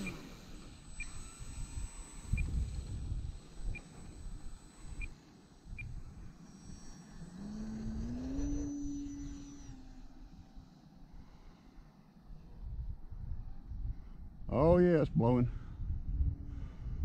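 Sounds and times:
wind buffeting microphone: 0.0s - 6.4s, 12.5s - 17.0s
electric motor and propeller whine: 0.0s - 17.0s.

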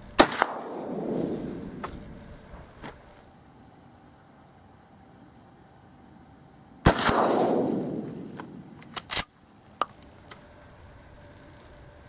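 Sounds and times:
shotgun shot: 0.2s - 1.8s, 6.8s - 8.7s.

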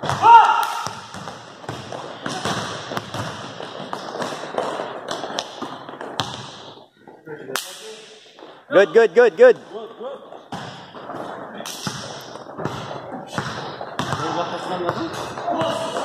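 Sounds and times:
basketball dribbling on gym floor: 0.0s - 6.8s, 10.4s - 16.0s
players' footsteps: 0.9s - 7.3s, 8.1s - 16.0s.

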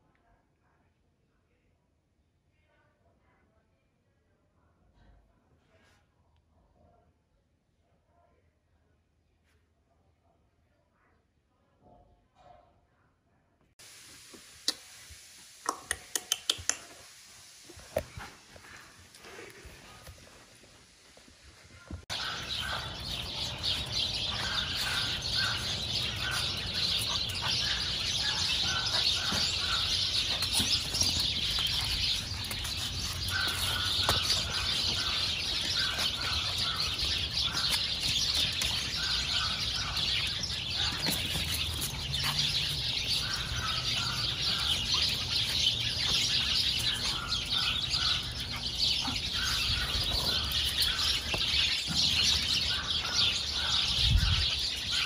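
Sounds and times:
birds chirping: 17.8s - 55.0s.

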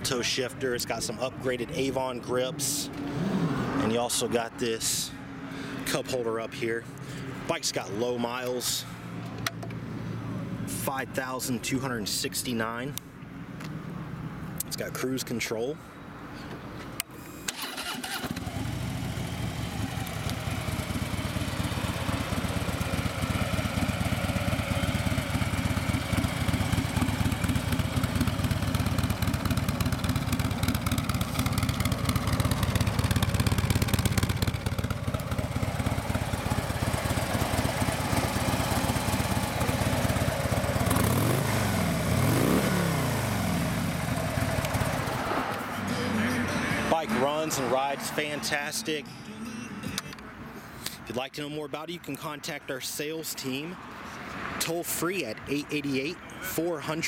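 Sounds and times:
motorcycle engine idling: 17.8s - 45.2s.

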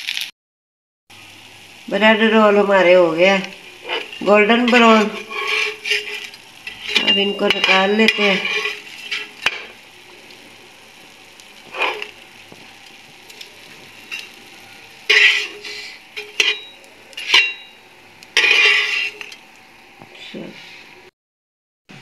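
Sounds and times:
oil sizzling in a frying pan: 0.0s - 0.3s, 1.1s - 21.1s
spatula scraping a pan: 3.4s - 19.4s.

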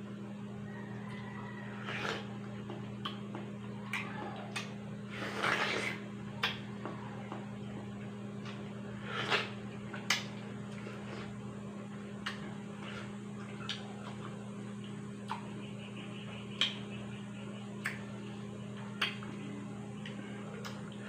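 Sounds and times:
steady low hum: 0.0s - 21.0s
wet bite and slurp: 1.8s - 2.4s, 5.1s - 6.6s, 9.0s - 11.3s
lip smacks and mouth clicks: 1.8s - 6.7s, 9.2s - 10.9s, 12.2s - 15.6s, 16.5s - 16.9s, 17.8s - 18.1s, 18.8s - 19.4s, 20.0s - 21.0s.

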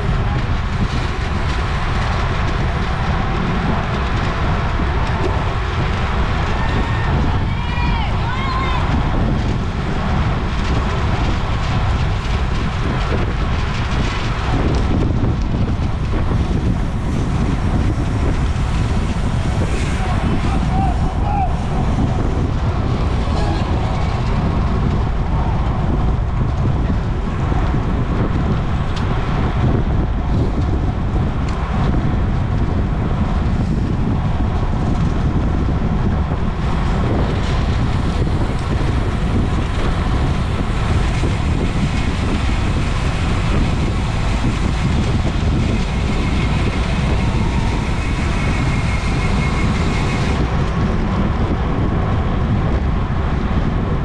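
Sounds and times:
wind buffeting microphone: 0.0s - 54.0s.

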